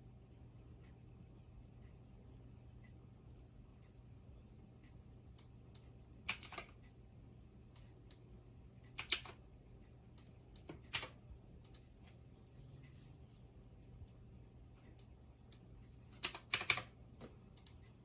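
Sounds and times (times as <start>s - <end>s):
faint low hum: 0.0s - 18.0s
keyboard and mouse clicks: 5.4s - 6.8s, 8.9s - 9.4s, 10.2s - 11.9s, 14.8s - 17.9s.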